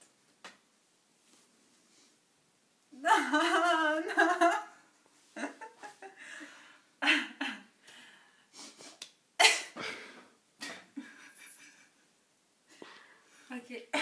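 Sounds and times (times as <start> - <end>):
women laughing: 3.0 - 4.7, 5.4 - 6.2.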